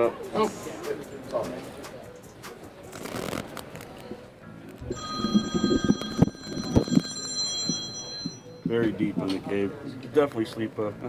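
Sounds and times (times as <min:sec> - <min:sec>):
ringing chime high tones: 0:04.9 - 0:08.8.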